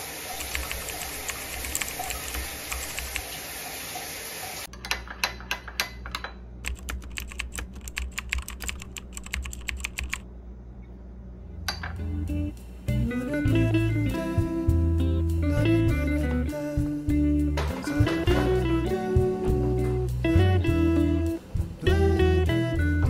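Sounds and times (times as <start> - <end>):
shower head spraying water: 0.0 - 4.7.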